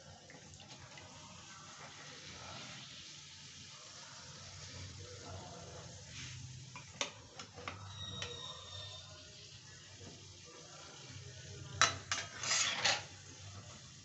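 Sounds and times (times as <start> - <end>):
bread deep-frying in oil: 0.0 - 14.0.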